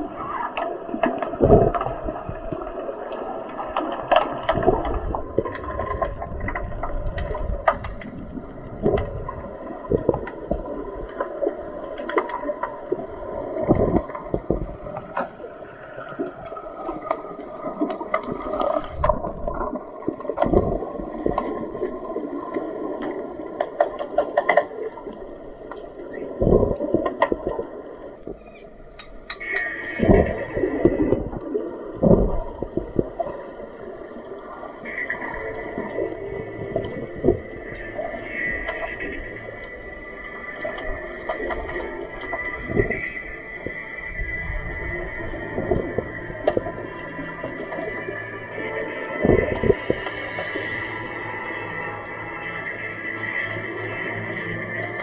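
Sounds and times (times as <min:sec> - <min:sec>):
muffled underwater water rush: 0:00.0 - 0:55.0.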